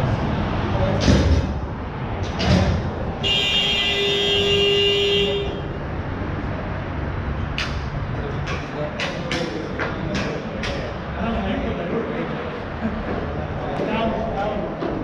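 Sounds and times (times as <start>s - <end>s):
rink horn blast: 3.2s - 5.6s.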